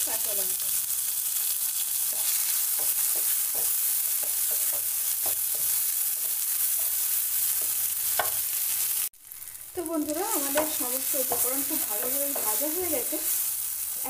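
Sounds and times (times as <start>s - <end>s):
vegetables sizzling in oil: 0.0s - 14.0s
wooden spatula scraping a pan: 10.3s - 13.5s.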